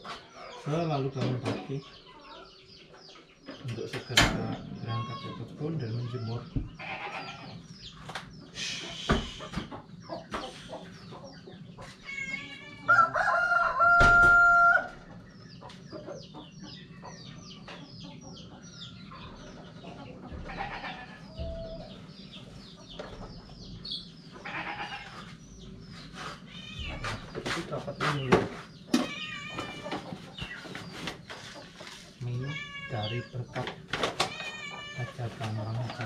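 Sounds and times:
hens clucking: 0.0 - 14.0, 14.8 - 36.0
rooster crowing: 12.8 - 15.0.

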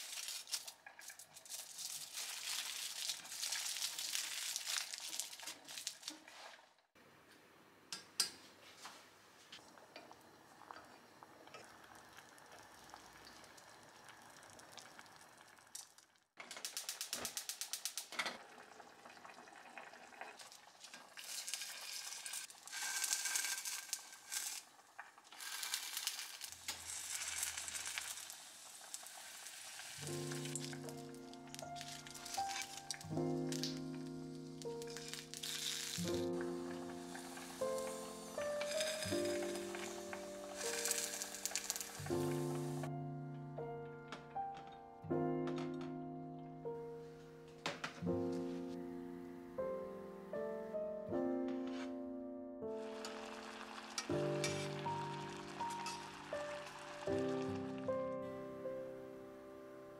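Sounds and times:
food sizzling in a frying pan: 0.0 - 6.4, 10.4 - 42.9, 52.7 - 58.1
aluminium foil crinkling: 0.0 - 6.7, 14.8 - 18.1, 20.2 - 42.9, 52.8 - 57.8
pot simmering: 0.0 - 6.8, 9.6 - 42.9, 52.8 - 58.2.

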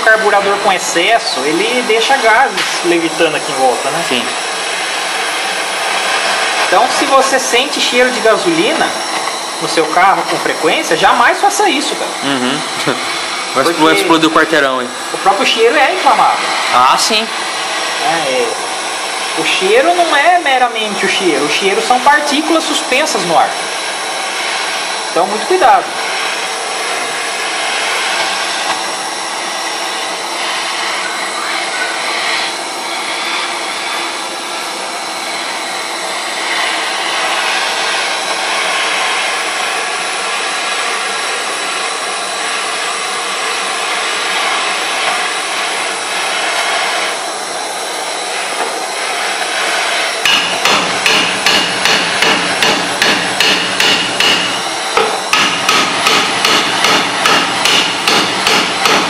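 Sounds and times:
gas torch hissing: 0.0 - 59.0
hammer blows on metal: 50.2 - 59.0.

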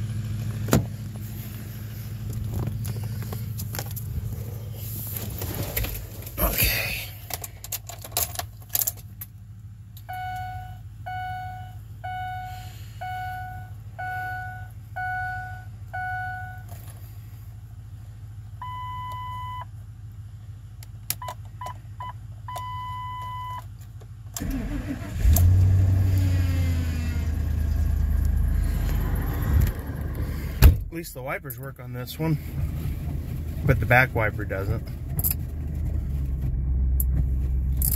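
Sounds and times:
car engine starting and idling: 0.0 - 37.9
short beeps: 10.1 - 16.7, 18.6 - 19.7.

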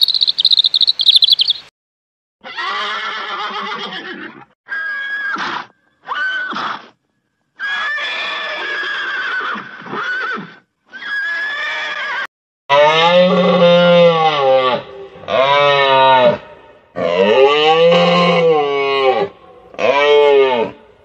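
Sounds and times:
horse neighing: 2.4 - 4.5.

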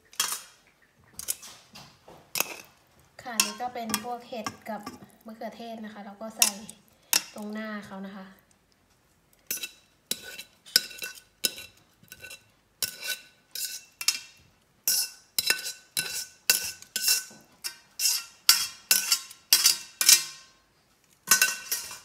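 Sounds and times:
metal tongs clinking on plates: 3.4 - 5.0, 6.4 - 7.4, 9.5 - 14.3, 14.9 - 20.5, 21.3 - 22.0.

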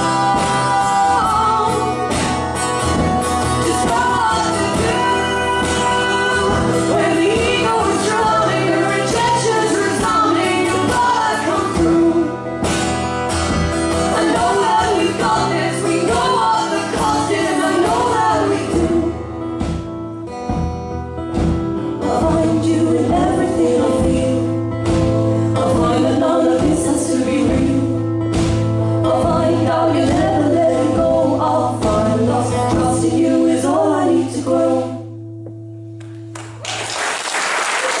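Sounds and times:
women singing: 0.0 - 12.9, 13.9 - 19.4, 22.0 - 35.2
strummed acoustic guitars: 0.0 - 36.3
audience applause: 36.3 - 38.0.

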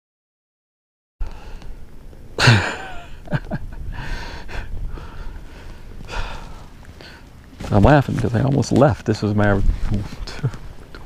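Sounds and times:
man laughing: 2.4 - 4.7
breathy exhales: 3.9 - 7.3.

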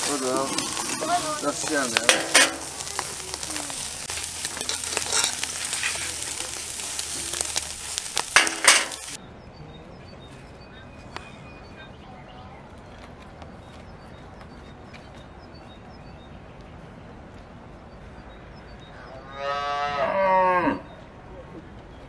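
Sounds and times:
utensil clinking: 0.0 - 2.9, 4.3 - 6.3, 7.5 - 9.2
food sizzling in frying: 0.0 - 9.2.

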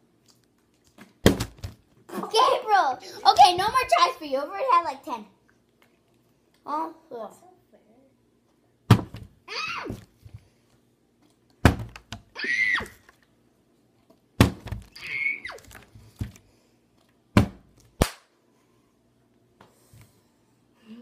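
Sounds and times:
plastic bottle thunking on table: 8.9 - 9.3, 11.6 - 12.2
child squealing: 9.5 - 10.0, 12.4 - 13.0, 15.0 - 15.7.

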